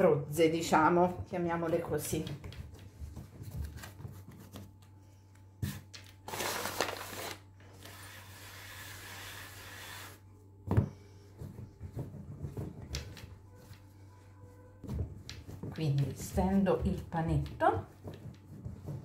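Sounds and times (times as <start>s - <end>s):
palms patting dough: 0.0s - 6.2s, 10.1s - 19.0s.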